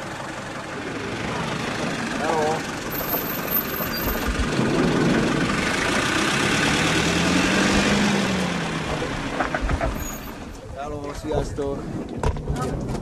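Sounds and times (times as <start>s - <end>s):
van engine driving past: 0.0s - 10.5s.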